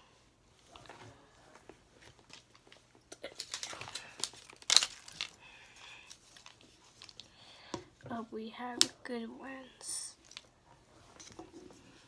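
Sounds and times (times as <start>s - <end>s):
plastic wrap tearing and crinkling: 2.1s - 5.4s.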